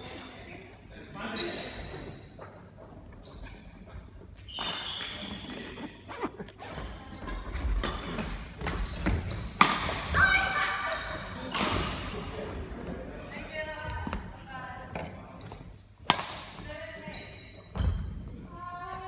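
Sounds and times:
shoes squeaking on floor: 1.2 - 9.6, 14.8 - 15.9, 16.7 - 18.3
rackets striking shuttlecock: 16.0 - 16.6.

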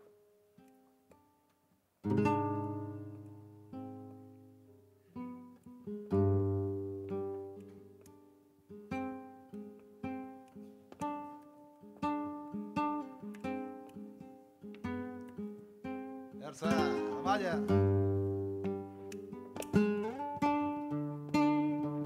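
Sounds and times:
flamenco guitar playing: 2.0 - 22.0.

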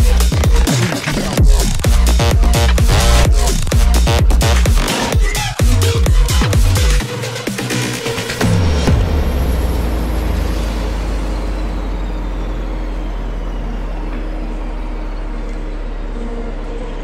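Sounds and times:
diesel engine running: 1.1 - 4.9, 8.4 - 17.0.

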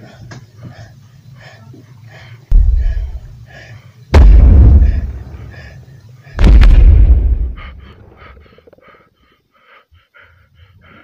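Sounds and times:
rhythmic rasping breath: 0.0 - 11.0
loud deep booms: 2.5 - 3.3, 4.1 - 5.4, 6.4 - 7.9.

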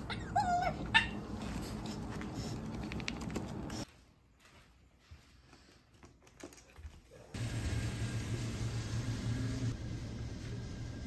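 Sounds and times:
dog paws ticking on floor: 1.3 - 7.1.

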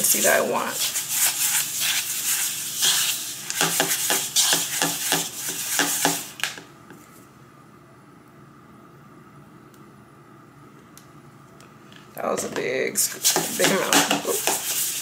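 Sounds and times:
scraping in mixing bowl: 0.0 - 6.4, 13.1 - 15.0.

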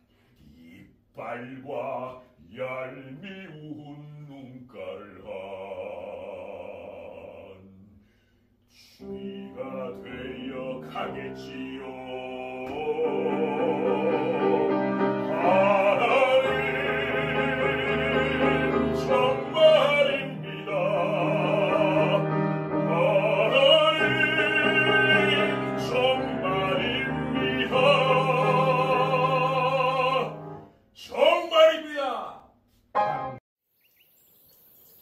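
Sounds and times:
bass singing operatically: 0.4 - 7.9, 8.8 - 32.3
grand piano: 9.0 - 30.7, 32.9 - 33.4.

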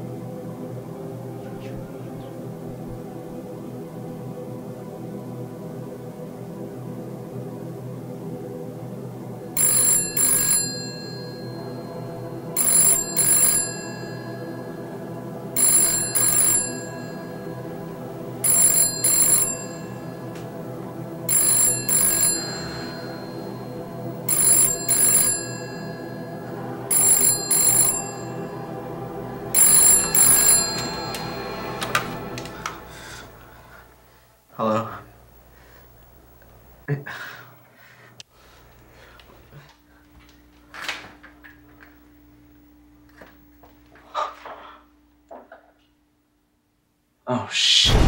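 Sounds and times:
background music drone: 0.0 - 37.0
telephone ringing: 9.6 - 32.6.

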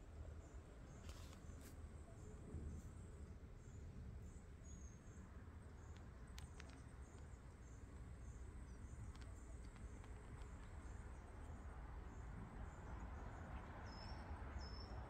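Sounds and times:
soft clicks: 5.9 - 8.1, 9.0 - 10.8.

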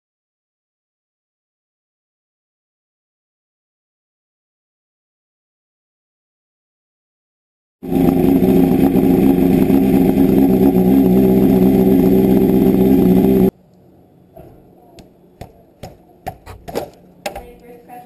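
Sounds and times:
motorcycle engine running: 7.8 - 13.5.

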